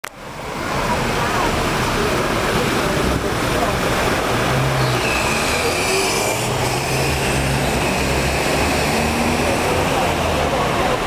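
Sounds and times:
car engines running: 0:00.0 - 0:11.0.

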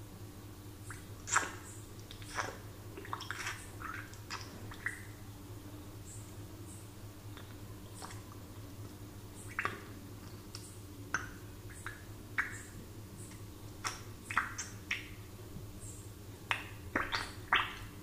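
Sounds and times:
faint low hum: 0:00.0 - 0:18.0
bubbles plinking in water: 0:00.9 - 0:05.2, 0:16.5 - 0:18.0.

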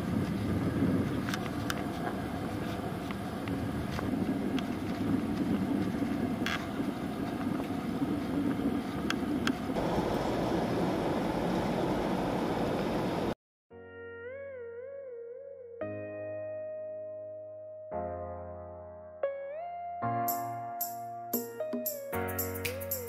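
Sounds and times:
jet engines and airflow rushing: 0:00.0 - 0:13.4.

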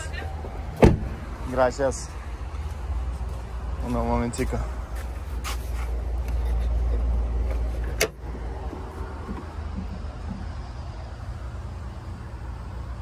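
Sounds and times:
low steady rumble: 0:00.0 - 0:13.0
hood latch click: 0:07.9 - 0:08.2.

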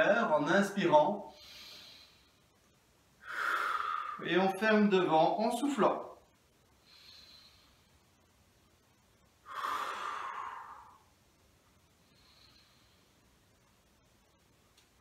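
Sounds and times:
man breathing slowly: 0:01.3 - 0:02.6, 0:03.2 - 0:04.2, 0:06.6 - 0:08.2, 0:09.4 - 0:11.2, 0:11.8 - 0:13.4.

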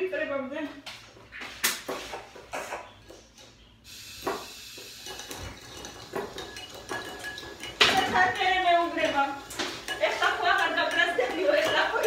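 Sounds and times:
food sizzling in a frying pan: 0:03.8 - 0:12.0
kitchenware knocks and clinks: 0:05.0 - 0:12.0.

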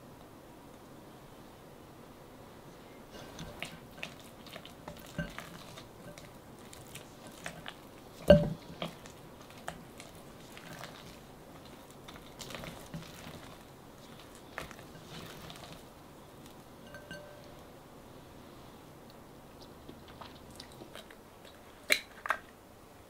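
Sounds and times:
spatula scraping glass bowl: 0:03.2 - 0:15.8, 0:16.8 - 0:17.4.

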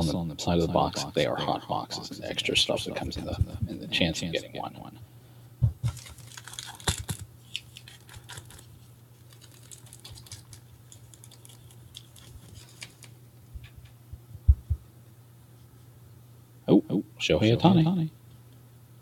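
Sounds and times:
dull knock: 0:05.6 - 0:05.9
cards being flipped through: 0:05.8 - 0:13.2.

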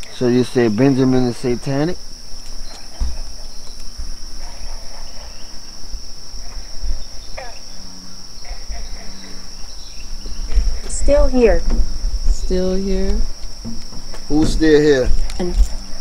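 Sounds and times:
crickets chirping: 0:00.0 - 0:16.0
low rumble on microphone: 0:05.5 - 0:16.0.

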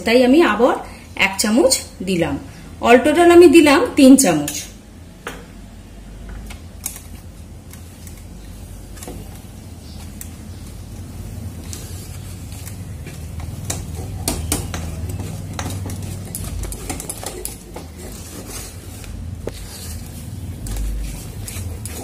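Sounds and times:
spatula scraping a pan: 0:08.4 - 0:22.0.

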